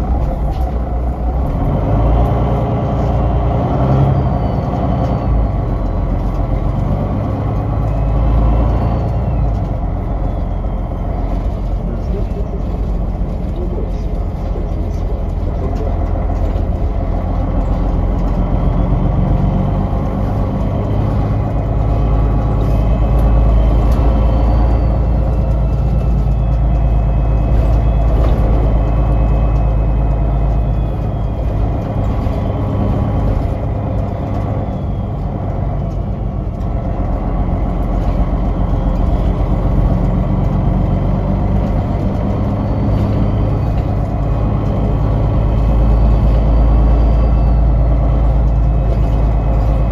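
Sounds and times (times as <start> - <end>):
bus engine droning: 0.0 - 49.9
faint rising whines: 16.9 - 49.9.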